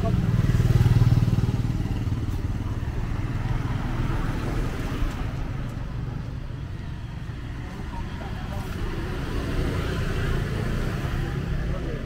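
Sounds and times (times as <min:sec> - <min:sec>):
motorbike riding away: 0:00.0 - 0:05.0
motorbike traffic hum: 0:00.0 - 0:12.0.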